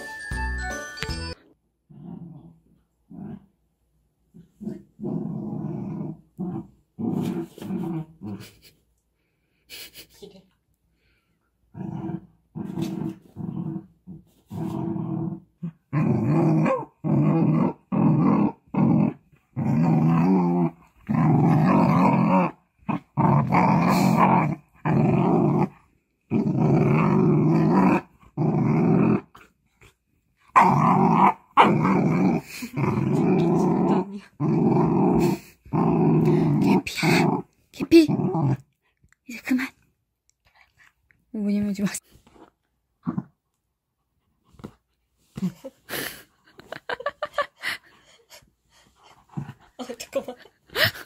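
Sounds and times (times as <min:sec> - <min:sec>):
dog growling: 0:01.9 - 0:03.5, 0:04.4 - 0:08.7, 0:11.7 - 0:29.5, 0:30.5 - 0:38.8.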